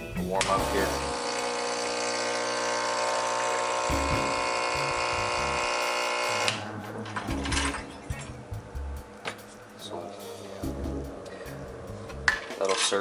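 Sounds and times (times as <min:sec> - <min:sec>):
espresso machine pump buzzing: 0:00.4 - 0:06.6.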